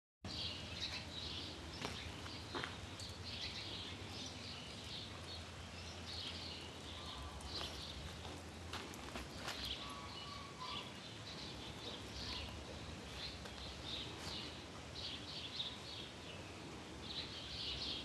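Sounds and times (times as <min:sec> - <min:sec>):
steady low rumble: 0:00.3 - 0:17.9
birds chirping: 0:00.3 - 0:18.0.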